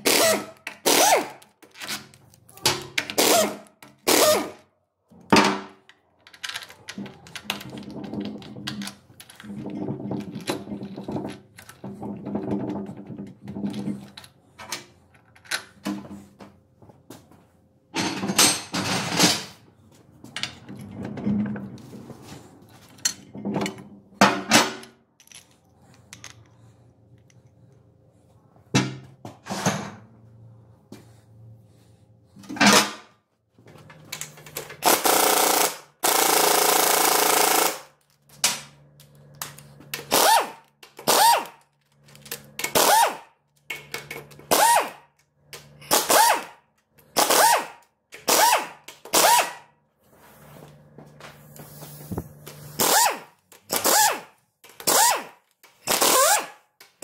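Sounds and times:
impact wrench bursts: 3.2s - 4.6s, 34.8s - 37.9s, 40.1s - 41.6s, 42.7s - 43.3s, 44.5s - 45.0s, 45.9s - 46.6s, 47.2s - 49.6s, 52.8s - 56.6s.

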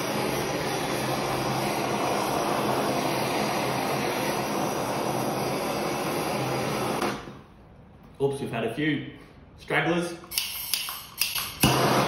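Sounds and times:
blowtorch flame hissing: 0.0s - 7.4s, 11.5s - 12.0s.

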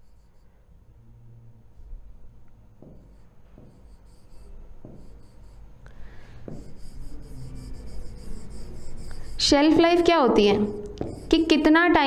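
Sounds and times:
pen tapping on screen: 2.8s - 5.6s, 6.5s - 11.5s
pen scratching on screen: 6.5s - 11.6s.

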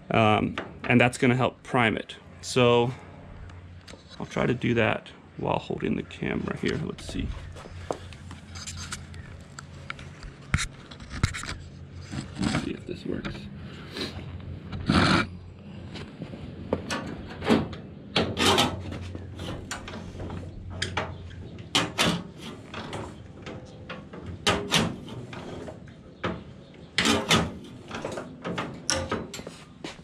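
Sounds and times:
engine hand crank clunking: 20.7s - 29.5s.

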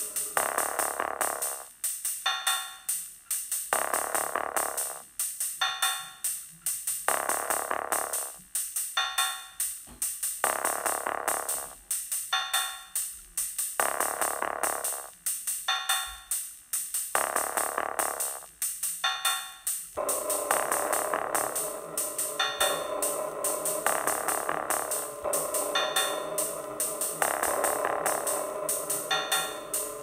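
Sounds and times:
drum machine beat: 0.0s - 30.0s
repeating synth phrase: 20.0s - 30.0s.

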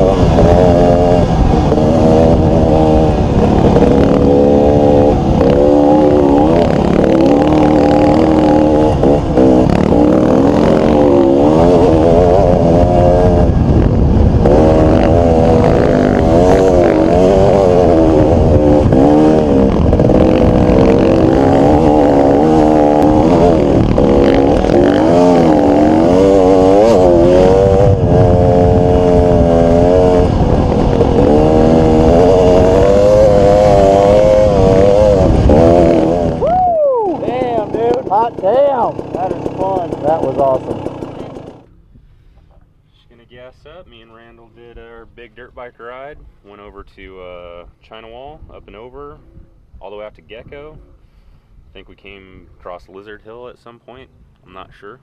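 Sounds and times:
dirt bike engine revving: 0.0s - 41.8s.

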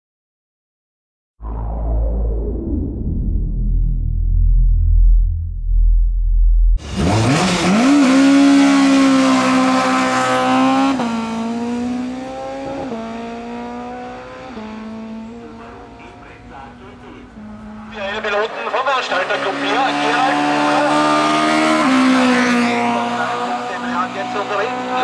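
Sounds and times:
race car engine at high revs: 6.8s - 25.0s.

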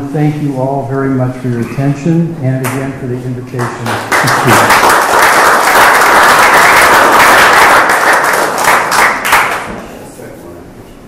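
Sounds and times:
audience applauding: 3.6s - 9.7s.

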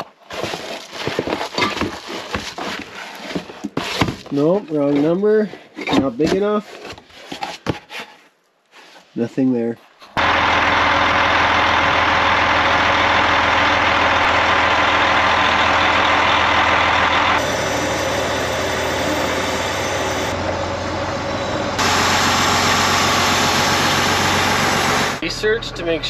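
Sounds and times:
vehicle engine idling: 10.2s - 26.0s.

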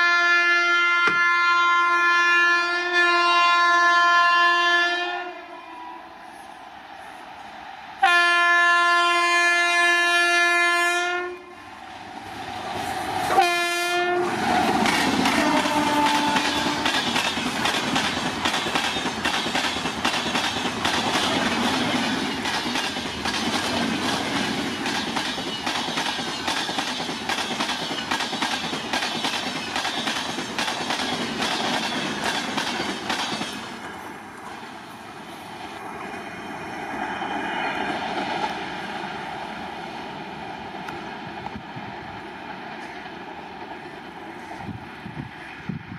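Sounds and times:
locomotive horn blast: 0.0s - 5.8s, 8.0s - 11.6s, 13.3s - 14.4s, 15.3s - 16.9s
train wheels clacking on rails: 14.3s - 34.6s.

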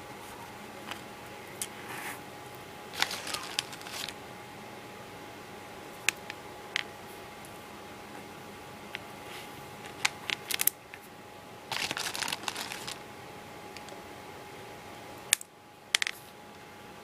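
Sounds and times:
plastic beads clicking: 2.9s - 4.2s, 6.0s - 6.9s, 9.8s - 11.0s, 11.7s - 13.0s, 15.3s - 16.2s
rustle of handling: 2.9s - 4.2s, 8.9s - 11.1s, 11.7s - 13.0s.

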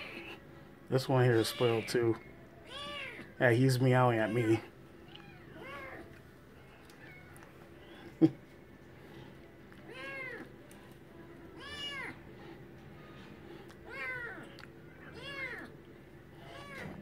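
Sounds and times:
cat meowing: 2.6s - 3.3s, 4.3s - 6.1s, 13.9s - 15.7s, 16.4s - 17.0s.

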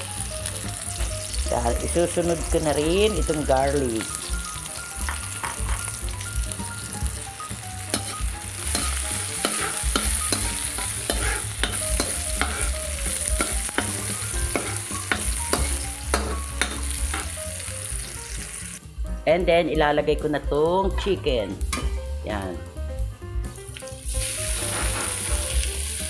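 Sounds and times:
onion sizzling in oil: 0.0s - 18.8s, 23.5s - 26.0s
stirring clicks and scrapes on pan: 8.7s - 17.3s.

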